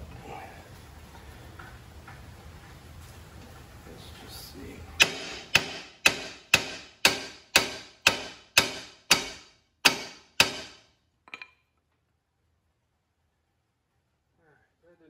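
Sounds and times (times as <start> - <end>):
hammer striking metal: 5.0 - 11.5.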